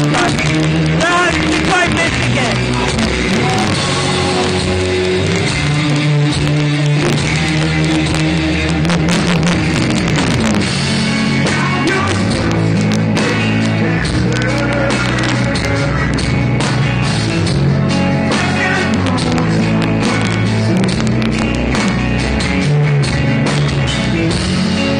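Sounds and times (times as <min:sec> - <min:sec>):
drum kit: 0:00.0 - 0:24.9
electric guitar: 0:00.0 - 0:24.9.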